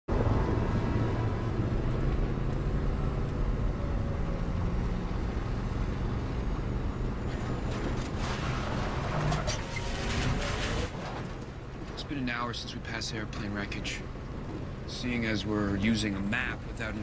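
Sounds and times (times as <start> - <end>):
vehicle engine rumble: 0.1 - 17.0
clanks and rattles: 7.2 - 12.6.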